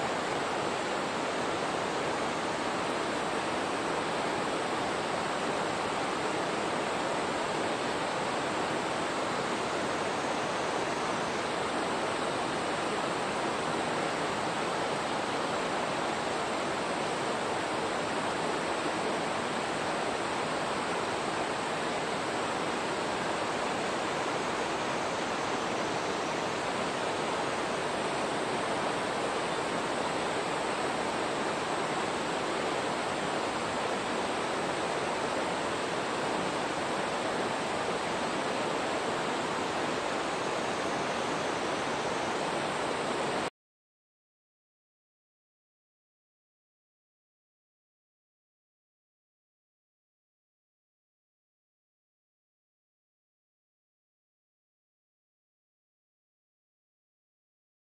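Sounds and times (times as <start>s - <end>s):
running water rushing: 0.0s - 43.5s.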